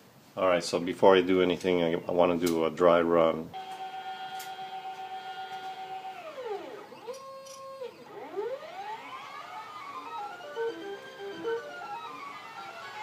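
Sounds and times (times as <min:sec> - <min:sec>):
stepper motors whining: 0:03.6 - 0:13.0.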